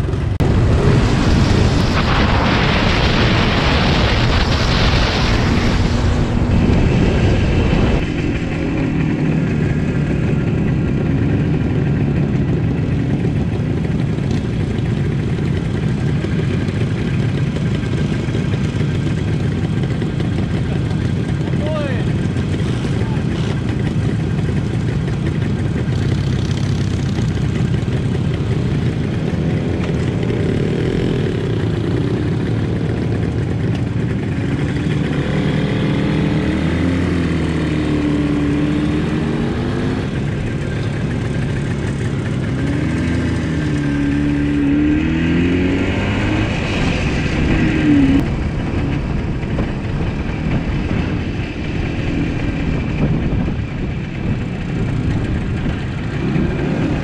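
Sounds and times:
wind over microphone: 0.0s - 13.8s, 37.1s - 57.0s
motor scooter engines: 0.0s - 57.0s.

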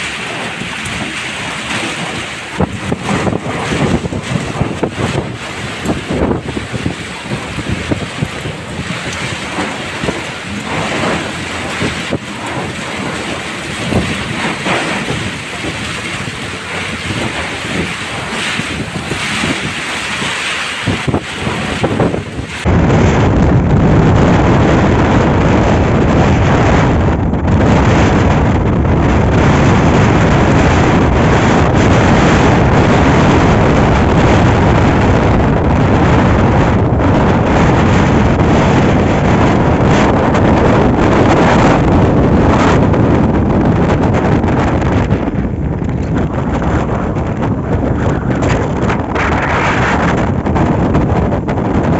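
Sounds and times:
driving rain hiss: 0.0s - 22.7s
waves splashing against bank: 0.0s - 22.7s
storm wind gusting on microphone: 0.0s - 51.9s.

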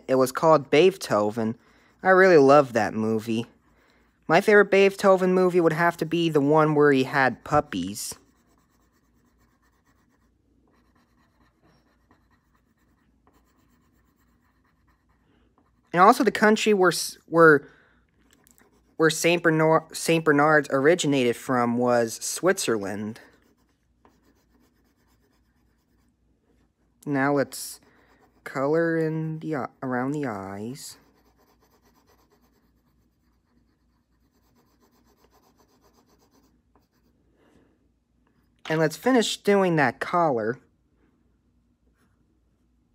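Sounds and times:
pencil scratching on paper: 0.0s - 17.2s, 18.4s - 37.2s.

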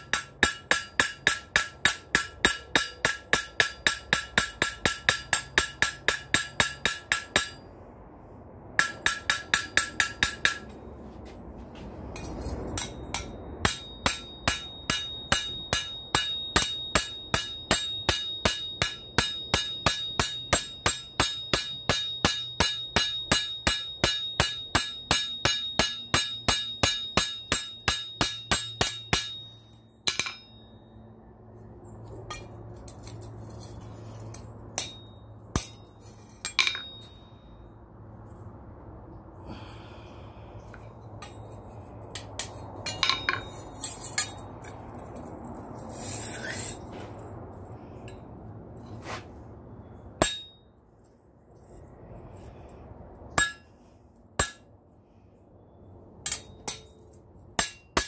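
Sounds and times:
hammer striking anvil: 0.0s - 7.7s, 8.8s - 10.8s, 12.2s - 30.7s, 34.8s - 37.4s, 42.2s - 44.4s, 50.2s - 50.6s, 53.4s - 53.7s, 54.4s - 54.7s, 56.2s - 58.0s.

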